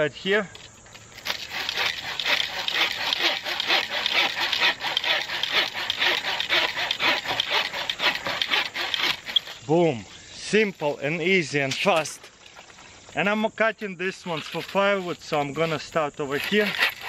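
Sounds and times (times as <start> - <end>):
hand saw cutting branch: 1.2 - 9.8, 14.1 - 17.0.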